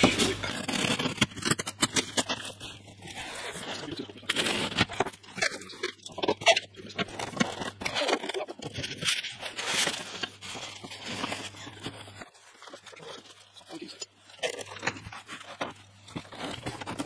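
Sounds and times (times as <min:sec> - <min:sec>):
polystyrene foam crunching: 0:00.0 - 0:17.0.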